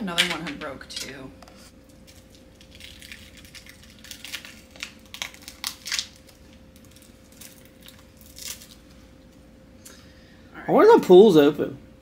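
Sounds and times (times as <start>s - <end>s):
plastic wrapping crinkling and tearing: 1.8s - 8.9s.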